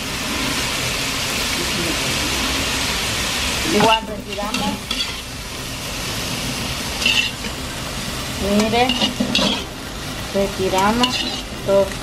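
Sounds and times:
shrimp sizzling in oil: 0.0s - 12.0s
metal spoon scraping wok: 3.7s - 5.3s, 6.9s - 7.6s, 8.4s - 9.8s, 10.7s - 11.6s.

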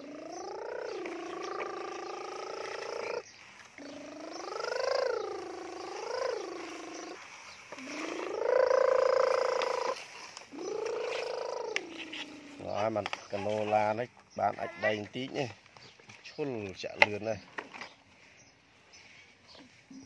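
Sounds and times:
person imitating engine noises: 0.0s - 12.5s.

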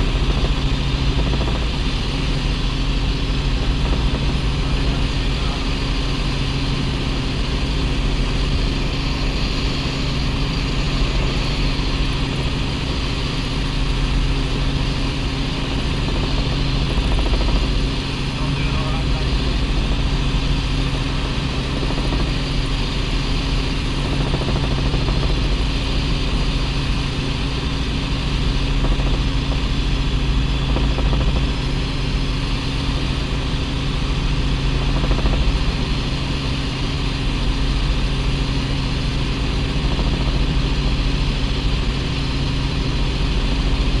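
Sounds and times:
helicopter engine and rotor drone: 0.0s - 44.0s.

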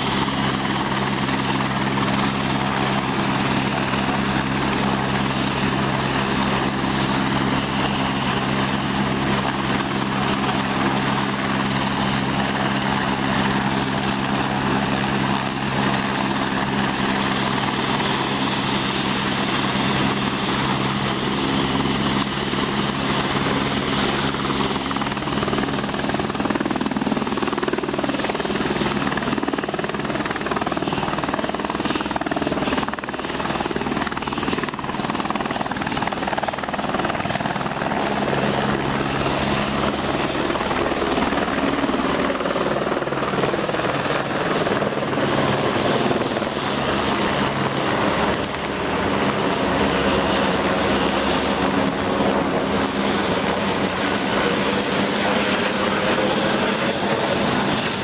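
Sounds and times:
helicopter engine and rotor whine: 0.0s - 58.0s.

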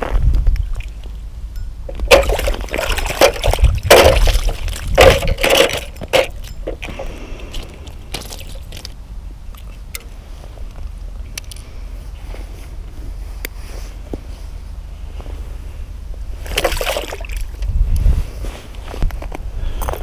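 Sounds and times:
water splashing: 1.9s - 9.0s, 16.4s - 17.6s.

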